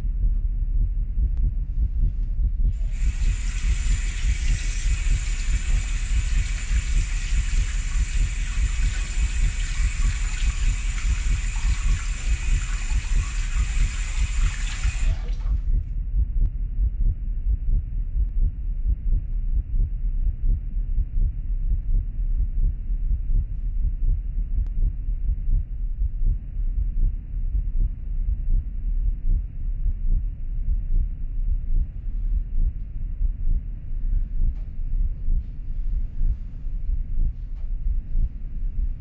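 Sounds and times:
faucet running into a sink: 0:02.8 - 0:15.6
hands washing under water: 0:02.8 - 0:15.6.

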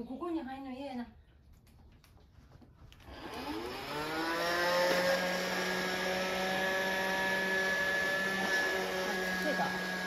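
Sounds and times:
vacuum cleaner motor whining: 0:03.1 - 0:10.0.

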